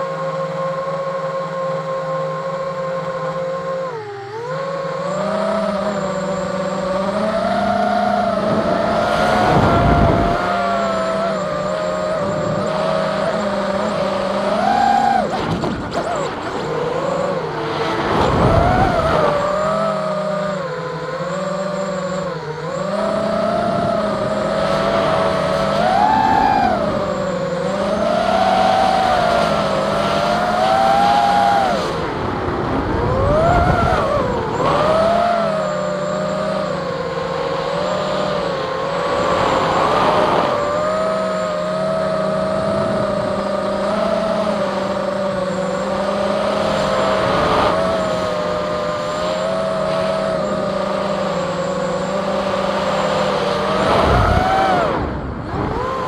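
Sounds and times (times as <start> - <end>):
drone motors and propellers whining: 0.0 - 56.0
wind rushing over microphone: 8.0 - 13.1, 30.6 - 35.6, 38.9 - 45.0, 52.2 - 56.0.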